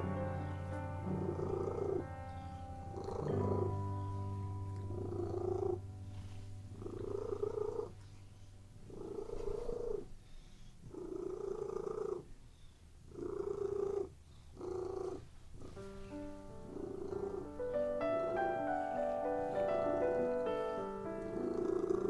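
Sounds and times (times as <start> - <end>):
music: 0.0 - 10.2, 15.6 - 22.0
cat purring: 0.0 - 22.0.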